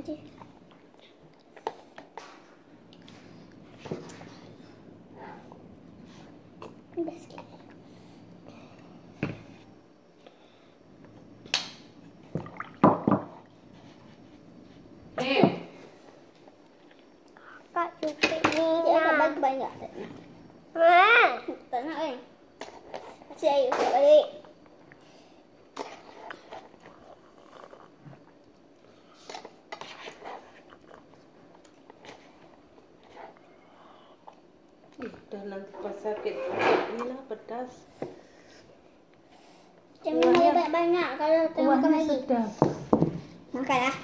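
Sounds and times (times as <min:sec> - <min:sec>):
chewing and mouth noises: 0:26.2 - 0:28.9, 0:30.3 - 0:33.5.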